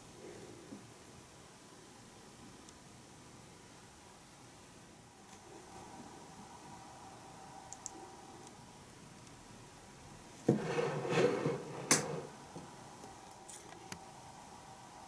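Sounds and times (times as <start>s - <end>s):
rustling and scraping handling: 10.4s - 12.4s.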